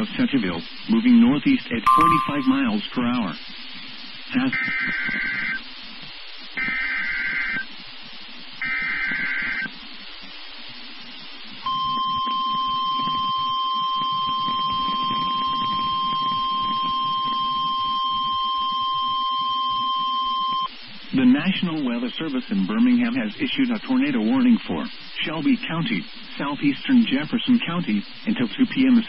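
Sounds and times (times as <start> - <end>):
faint radio hiss: 0.0 - 29.0
single-tone warning alarm: 1.9 - 2.7, 11.7 - 20.7.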